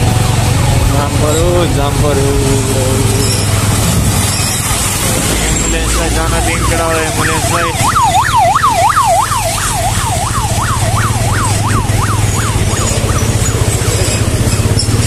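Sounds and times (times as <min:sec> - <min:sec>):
low engine rumble: 0:00.0 - 0:15.0
siren in fast yelp mode: 0:06.4 - 0:13.5.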